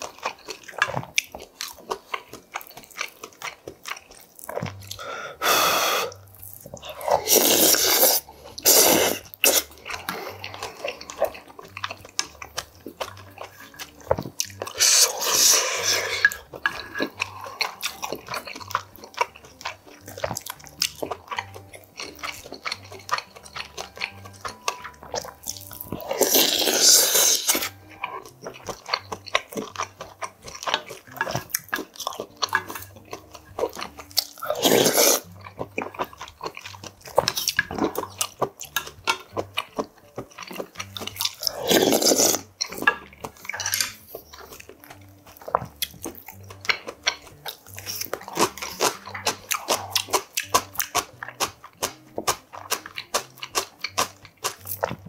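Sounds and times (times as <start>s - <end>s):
wet chewing: 0.0s - 55.0s
slurping broth from spoon: 4.9s - 11.1s, 14.6s - 18.1s, 25.9s - 28.3s, 34.4s - 35.3s, 40.6s - 44.5s.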